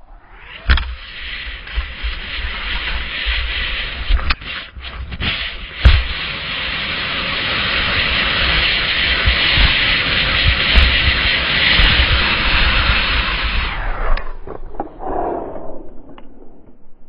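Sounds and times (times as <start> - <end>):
skis hissing over snow: 0.5 - 14.0
wind buffeting microphone: 0.7 - 17.0.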